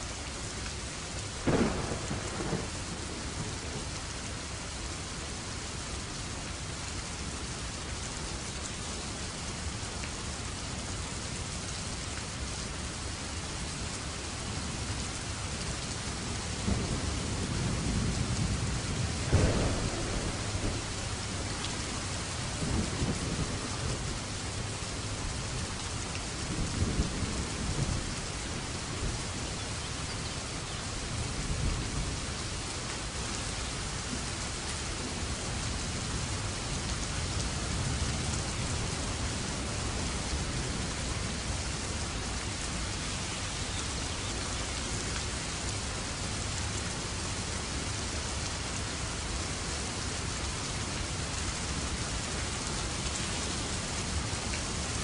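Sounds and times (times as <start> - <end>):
steady rain falling: 0.0 - 55.0
low rolls of thunder: 1.4 - 4.0, 16.5 - 29.3.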